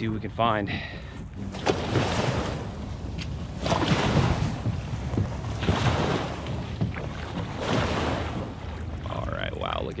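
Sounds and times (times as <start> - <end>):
low rumble: 1.2 - 10.0
footsteps in sand: 2.8 - 8.5.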